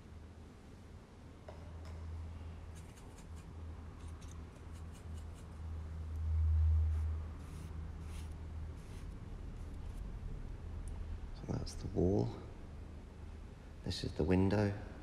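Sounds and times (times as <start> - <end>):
steady low hum: 0.0 - 15.0
paintbrush scratching on paper: 2.8 - 5.6, 6.9 - 10.0.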